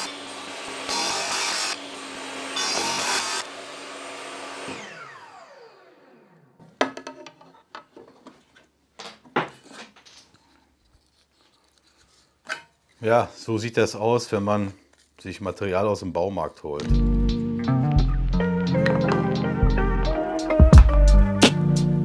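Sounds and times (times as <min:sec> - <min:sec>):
table saw cutting board: 0:00.0 - 0:06.4
saw blade spinning down: 0:04.5 - 0:06.6
wood pieces clacking on saw table: 0:06.7 - 0:10.3.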